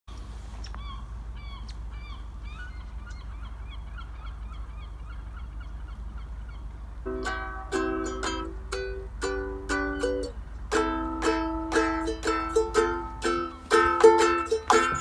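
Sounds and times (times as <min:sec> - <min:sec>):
geese honking: 0:00.8 - 0:08.4.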